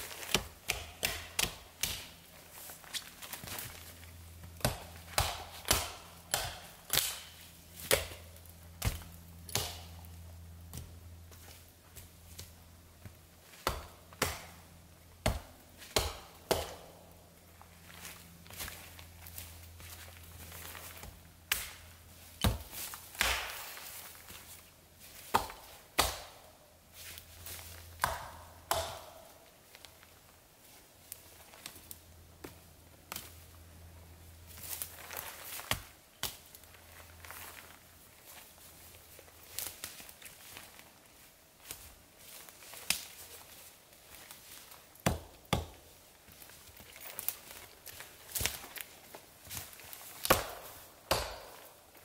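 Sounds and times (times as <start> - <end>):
axe chopping tree: 0.2 - 2.1, 4.5 - 10.0, 13.6 - 14.6, 15.2 - 17.0, 22.4 - 24.0, 25.2 - 26.4, 28.0 - 29.3, 45.0 - 45.8, 50.2 - 51.8.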